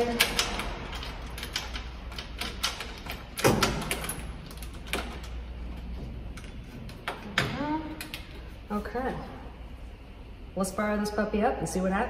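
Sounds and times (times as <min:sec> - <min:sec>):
grille clicks and rattles: 0:00.0 - 0:08.4.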